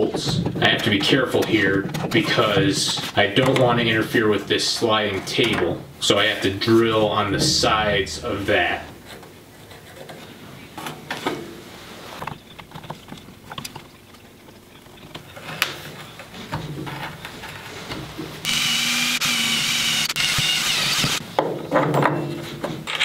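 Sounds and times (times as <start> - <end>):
power drill boring into wood: 18.4 - 21.2.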